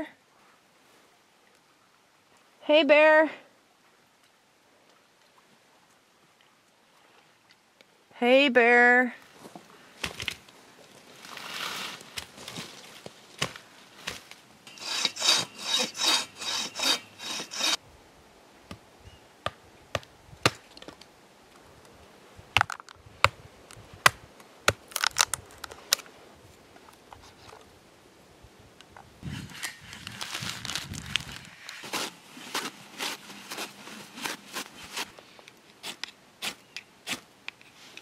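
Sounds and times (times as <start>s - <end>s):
knife splitting dry wood: 13.4s - 17.8s
hand saw cutting log: 14.7s - 17.8s
tissue rustling: 29.5s - 35.2s.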